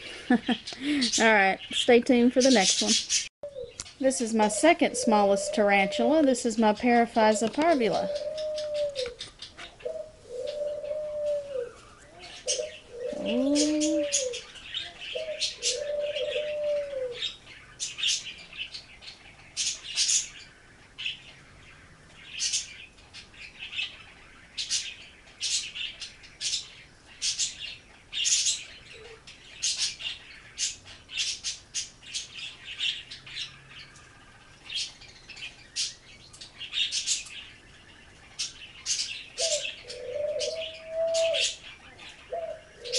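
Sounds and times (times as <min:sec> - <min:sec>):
small birds chirping: 0:00.0 - 0:42.9
dove cooing: 0:04.4 - 0:17.4, 0:28.8 - 0:29.3, 0:39.4 - 0:42.9.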